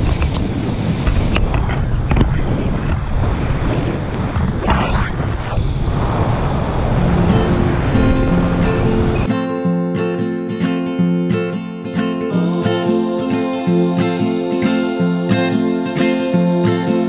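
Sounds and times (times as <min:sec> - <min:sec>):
wind rushing over microphone: 0:00.0 - 0:09.4
acoustic guitar music: 0:07.0 - 0:17.0.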